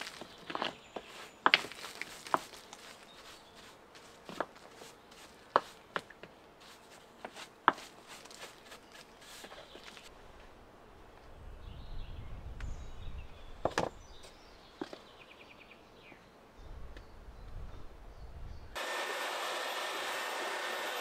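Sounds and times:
stones knocking together: 0:00.0 - 0:03.1
grit scraping: 0:00.0 - 0:05.8, 0:06.6 - 0:10.1.

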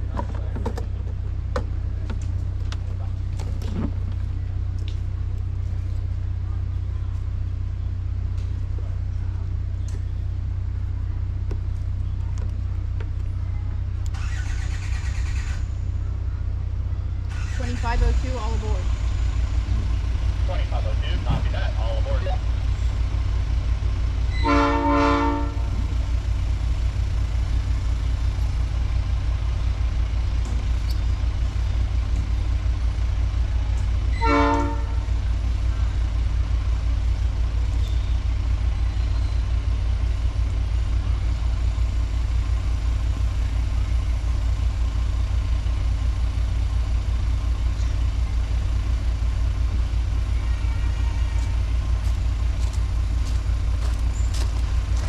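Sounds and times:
locomotive toots: 0:33.3 - 0:36.0.

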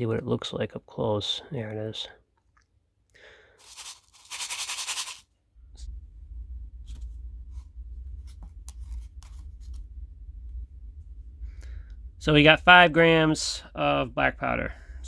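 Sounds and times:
plastic cup rasping rustle: 0:03.6 - 0:05.2
low steady hum: 0:05.4 - 0:15.0.

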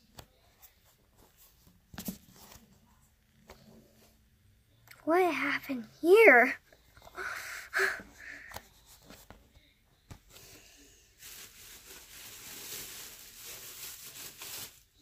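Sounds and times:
rustling of handled objects: 0:10.3 - 0:15.0.

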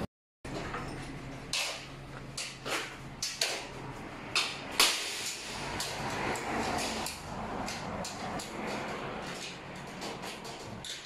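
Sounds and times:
metal knocks and clanks: 0:05.2 - 0:11.0.

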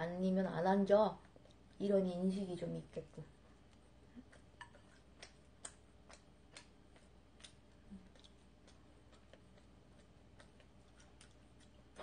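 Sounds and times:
mouth clicks of chewing: 0:03.7 - 0:12.0.

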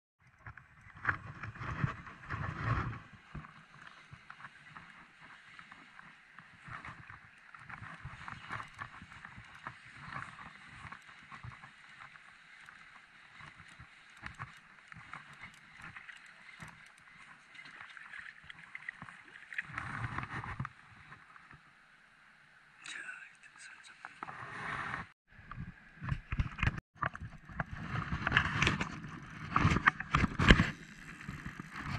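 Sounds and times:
water sloshing and splashing: 0:00.8 - 0:21.5
fishing reel clicking: 0:08.4 - 0:17.4.

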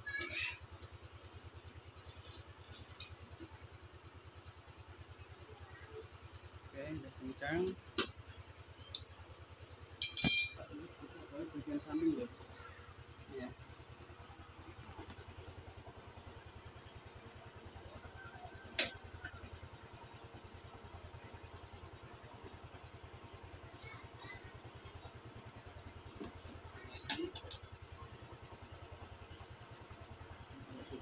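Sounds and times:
steady pulsing low hum: 0:09.6 - 0:31.0.

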